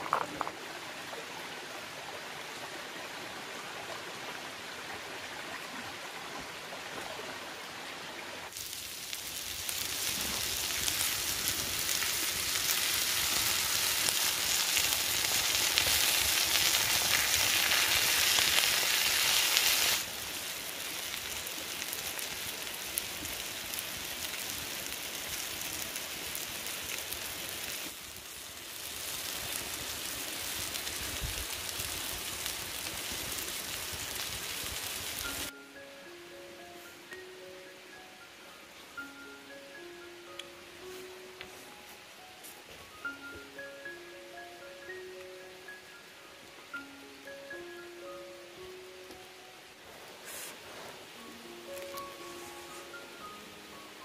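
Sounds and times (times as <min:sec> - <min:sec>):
shrimp sizzling on hot stone: 0:08.5 - 0:35.5, 0:50.2 - 0:53.4.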